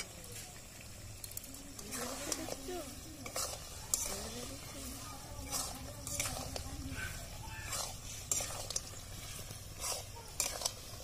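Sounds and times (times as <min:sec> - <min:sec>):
meat sizzling: 0:00.0 - 0:11.0
metal spatula scraping wok: 0:01.3 - 0:11.0.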